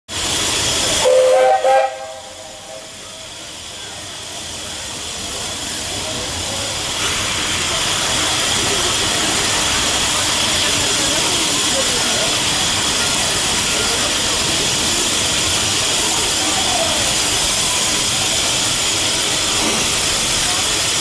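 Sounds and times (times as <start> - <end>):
steam hissing: 0.1 - 21.0
steam whistle blasts: 1.0 - 3.0.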